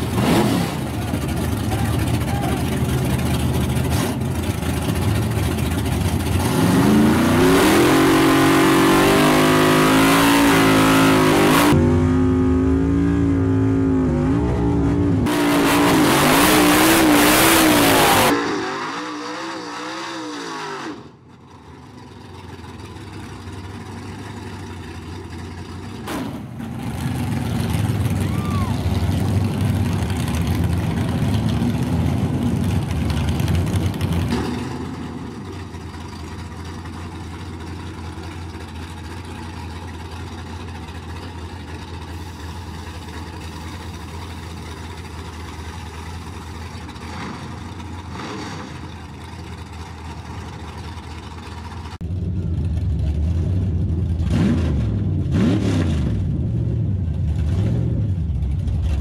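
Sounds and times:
pickup engine idling and revving: 0.0s - 59.0s
pickup engine pulling away hard: 21.6s - 59.0s.

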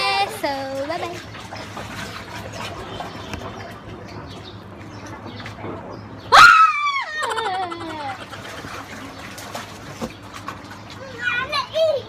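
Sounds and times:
lower falling cry: 6.3s - 7.8s
high cry falling in pitch: 6.3s - 8.2s.

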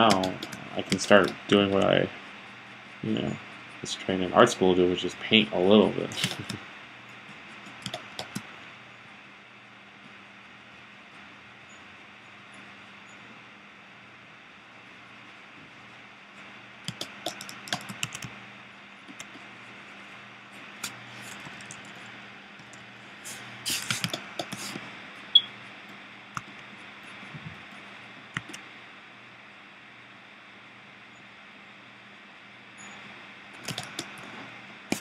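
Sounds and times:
computer keyboard keys clicking: 0.0s - 1.9s, 7.6s - 8.5s, 16.8s - 18.4s, 20.8s - 22.0s, 28.4s - 28.6s, 33.6s - 34.2s.

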